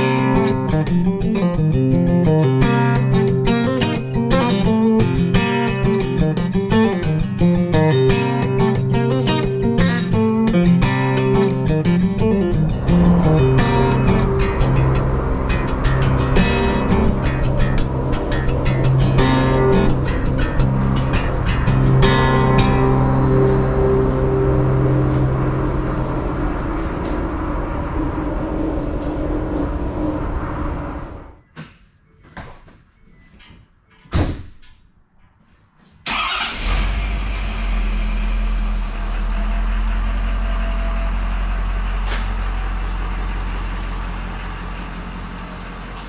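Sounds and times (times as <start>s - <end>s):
vehicle engine running: 2.1s - 31.4s, 36.9s - 46.0s
engine starting: 36.0s - 39.8s.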